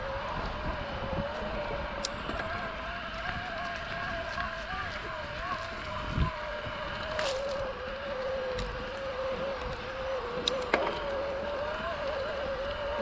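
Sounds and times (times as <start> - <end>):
electric bike motor whining: 0.0 - 13.0
tyres rushing on dirt track: 0.0 - 13.0
bike knocks and clicks: 10.4 - 11.9.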